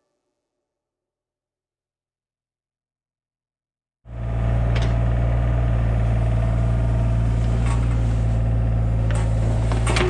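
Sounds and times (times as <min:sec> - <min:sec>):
excavator diesel engine running: 0:04.1 - 0:10.0.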